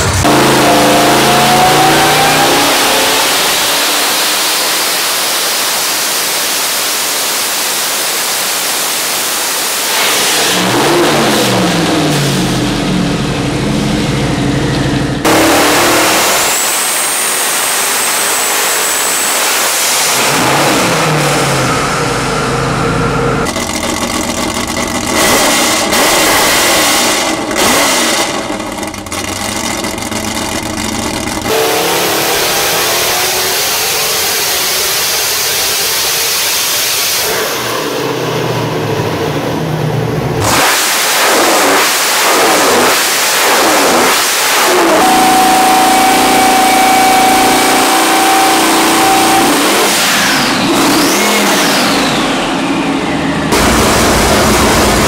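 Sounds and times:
race engines revving: 0.0s - 55.0s
high turbo whistle: 31.5s - 36.0s, 44.2s - 55.0s.

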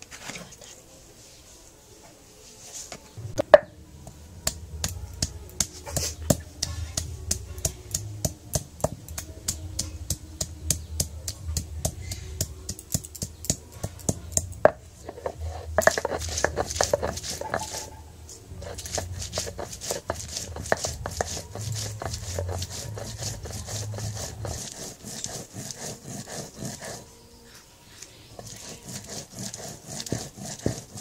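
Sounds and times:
stone roller pounding seeds: 4.4s - 17.9s, 18.5s - 27.0s, 28.3s - 31.0s
stone roller scraping: 4.4s - 27.1s, 28.3s - 31.0s.

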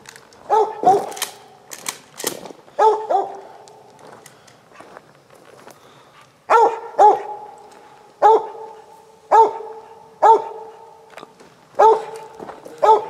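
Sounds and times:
dog barking: 0.5s - 1.2s, 2.8s - 3.6s, 6.5s - 7.6s, 8.2s - 11.1s, 11.8s - 13.0s.

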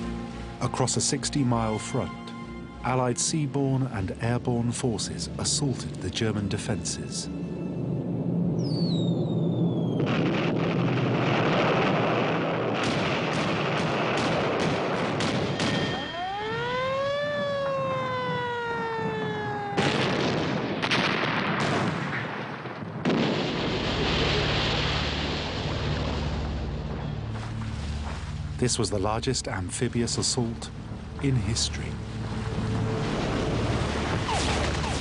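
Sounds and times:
siren wail: 7.4s - 10.4s, 15.4s - 20.4s, 34.1s - 35.0s
explosions: 8.6s - 16.1s, 19.0s - 27.1s
gunfire: 12.6s - 16.1s, 19.8s - 23.8s
deep rumble: 23.0s - 35.0s.

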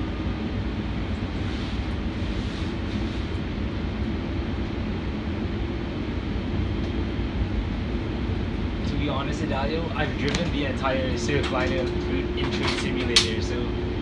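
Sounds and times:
train wheels rumbling on rail: 7.7s - 14.0s.

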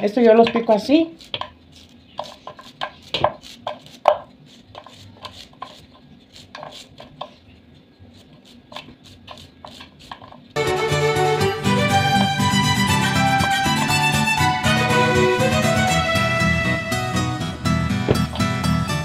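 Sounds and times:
knife slicing cactus: 0.4s - 10.5s.

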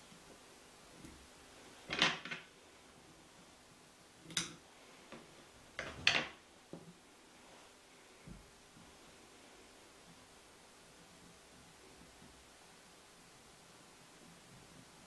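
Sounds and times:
tools rustling and clicking: 5.8s - 6.4s.

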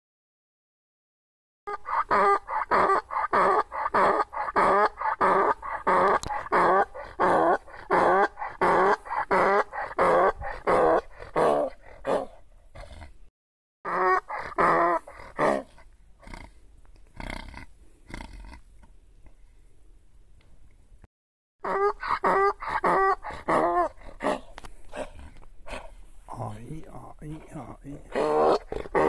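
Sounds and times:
donkey braying: 1.7s - 12.4s, 13.9s - 16.4s, 21.6s - 29.0s.

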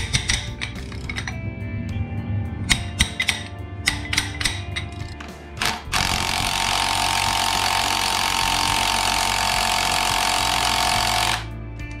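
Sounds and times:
power tool whining: 3.9s - 11.5s.

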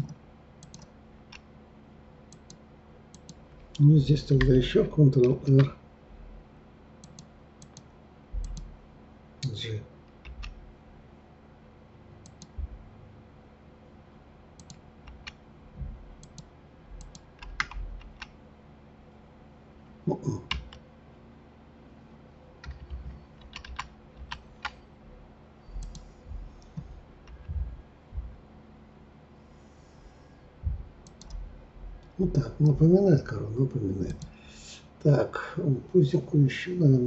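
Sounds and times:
keyboard and mouse clicking: 0.0s - 1.5s, 2.3s - 3.4s, 7.0s - 8.7s, 9.4s - 10.6s, 12.2s - 12.6s, 14.6s - 15.4s, 16.2s - 18.3s, 20.5s - 20.8s, 22.6s - 24.8s, 25.8s - 27.6s, 31.0s - 31.4s, 34.0s - 34.3s.

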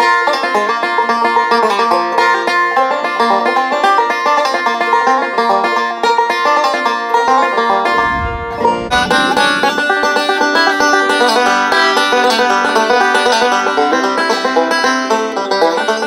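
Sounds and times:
banjo fingerpicking: 0.0s - 8.0s, 9.0s - 16.0s
short low rumble: 7.9s - 10.5s.

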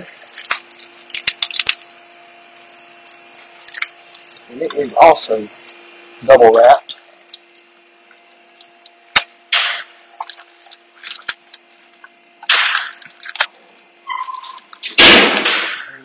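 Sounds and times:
plastic wrapping tearing and crackling: 0.0s - 4.5s, 10.2s - 12.1s.

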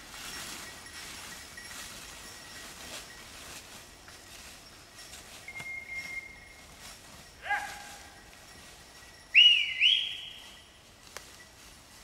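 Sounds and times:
dog whistle: 9.4s - 10.4s.

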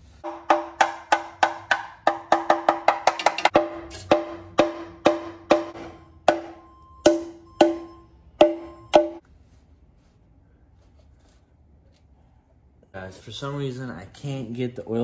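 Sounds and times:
hammer blows on steel pan: 3.5s - 9.2s.

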